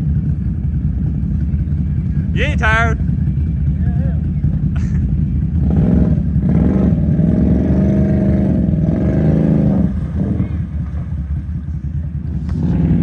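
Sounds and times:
quad engine revving hard: 0:05.6 - 0:10.7, 0:12.5 - 0:13.0
quad churning through mud: 0:05.6 - 0:11.4, 0:12.3 - 0:13.0.

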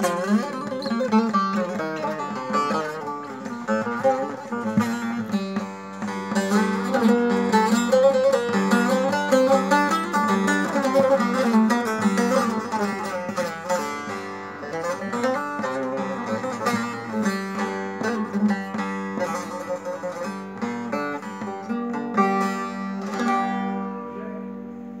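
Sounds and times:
long-neck lute picked melody: 0:00.0 - 0:25.0.

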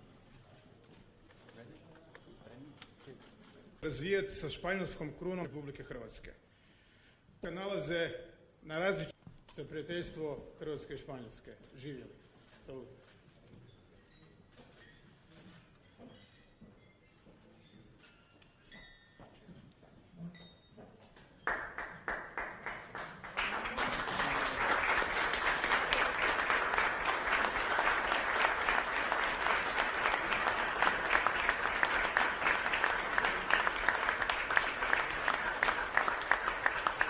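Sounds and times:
room applauding: 0:21.4 - 0:37.0.

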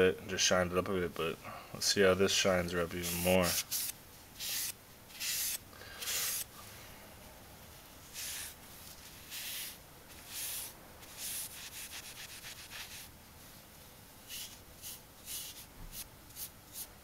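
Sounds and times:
cloth rubbing on knife blade: 0:02.9 - 0:06.5, 0:08.0 - 0:16.9.

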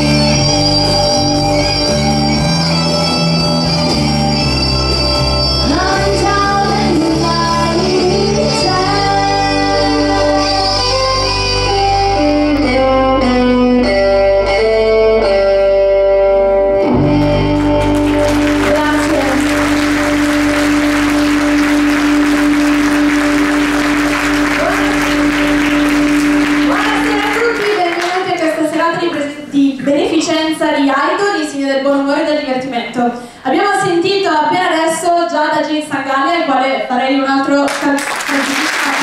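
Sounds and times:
guitar backing track: 0:00.0 - 0:29.1
woman singing into a microphone: 0:05.6 - 0:11.3
audience applauding: 0:17.2 - 0:28.5, 0:37.7 - 0:39.0.

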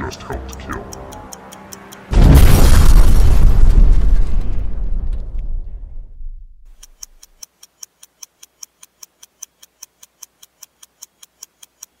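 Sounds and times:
clock ticking fast: 0:00.0 - 0:02.2, 0:06.7 - 0:12.0.

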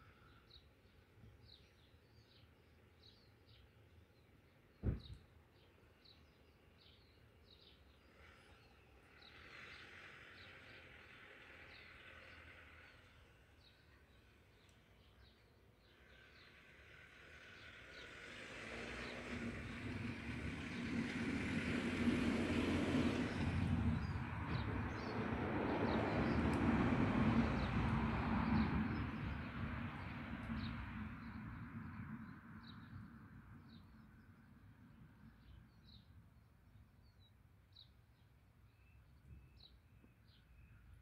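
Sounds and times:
vehicle passing on road: 0:08.2 - 0:13.7, 0:15.9 - 0:36.0.

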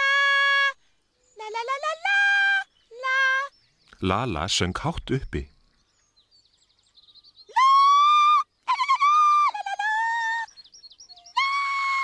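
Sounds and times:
high singing voice: 0:00.0 - 0:03.5, 0:07.5 - 0:10.5
faint bird twitter: 0:00.6 - 0:12.0.

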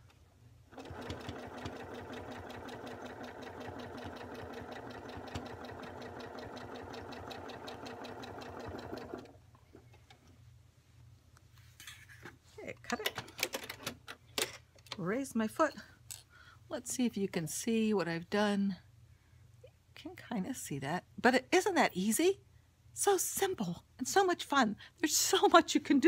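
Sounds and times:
sewing machine stitching: 0:00.7 - 0:09.4.

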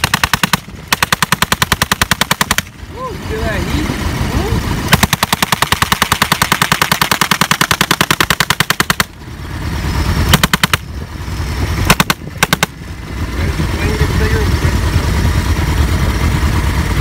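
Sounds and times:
machine gun firing bursts: 0:00.0 - 0:02.8, 0:04.8 - 0:09.2, 0:10.0 - 0:10.9, 0:11.8 - 0:12.8.

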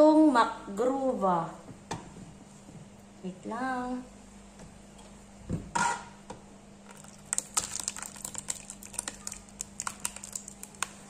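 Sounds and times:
stew splattering into bowl: 0:06.9 - 0:11.0.

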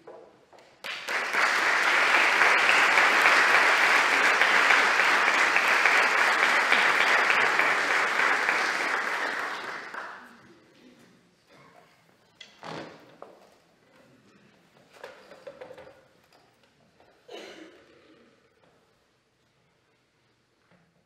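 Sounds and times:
audience applauding: 0:00.8 - 0:10.4.

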